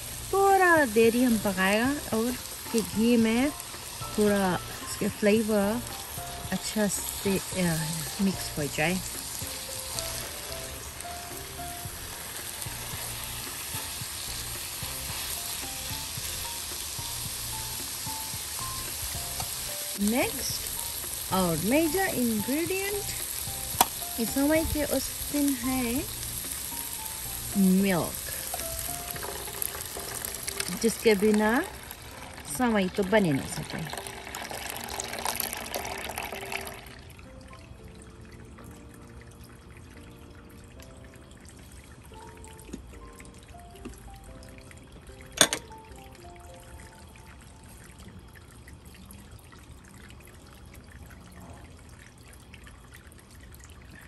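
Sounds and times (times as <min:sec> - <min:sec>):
food sizzling in a pan: 0:00.0 - 0:37.0
milk pouring into pan: 0:28.4 - 0:37.3
drips from spout: 0:28.4 - 0:54.0.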